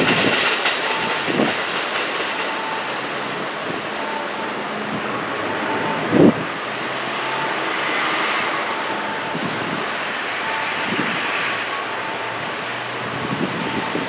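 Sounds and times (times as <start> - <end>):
wind on microphone: 0.0 - 2.3, 4.9 - 6.6, 9.1 - 10.0, 10.7 - 11.5, 12.4 - 14.0
distant road traffic: 0.0 - 14.0.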